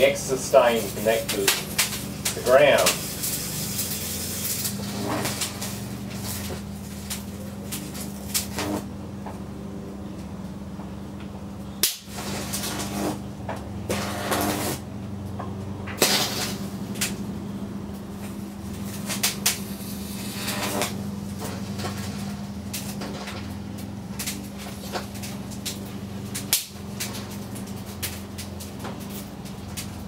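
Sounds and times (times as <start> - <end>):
electric arcs crackling: 0.0 - 9.3, 11.5 - 30.0
transformer humming: 0.0 - 30.0.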